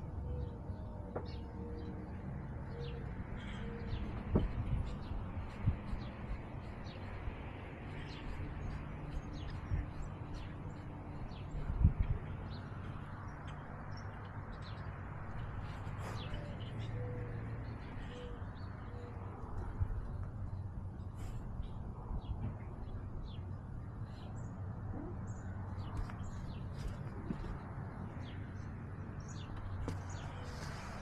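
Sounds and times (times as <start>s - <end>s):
birds chirping: 0.0s - 31.0s
steady low rumble: 1.9s - 18.7s.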